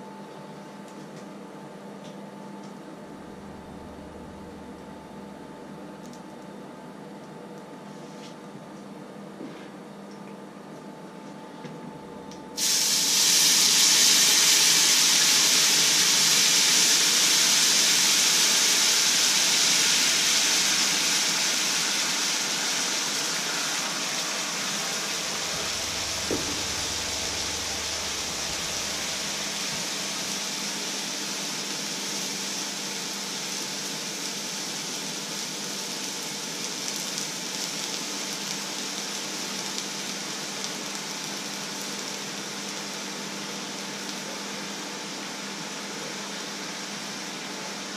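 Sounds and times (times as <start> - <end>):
water hissing on hot pan: 12.6 - 47.9.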